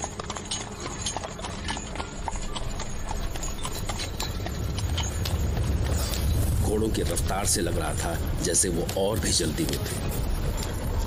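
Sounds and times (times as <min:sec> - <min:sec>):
horse hooves clip-clopping: 0:00.0 - 0:11.0
low rumble: 0:02.6 - 0:11.0.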